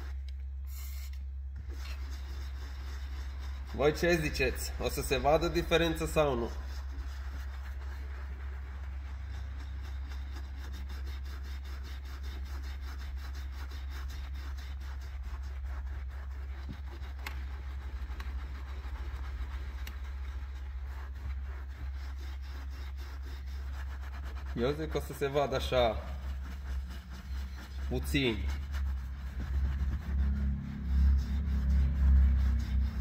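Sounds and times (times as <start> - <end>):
brush scrubbing leather: 0.0 - 33.0
low hum: 15.0 - 33.0.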